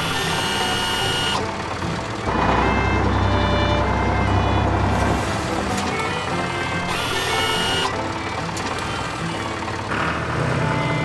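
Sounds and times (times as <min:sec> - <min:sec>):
cartoon tractor engine rumble: 0:00.0 - 0:11.0
brief high tone: 0:06.8 - 0:08.0.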